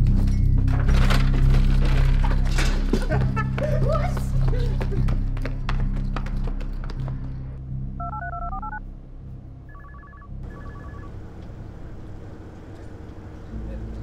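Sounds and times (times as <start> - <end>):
low hum: 6.6 - 14.0
touch-tone keypad beeps: 8.0 - 8.8, 9.7 - 11.1.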